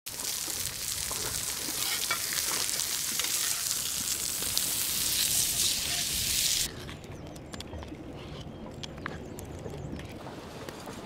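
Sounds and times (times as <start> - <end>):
steak sizzling on grill pan: 0.1 - 6.7.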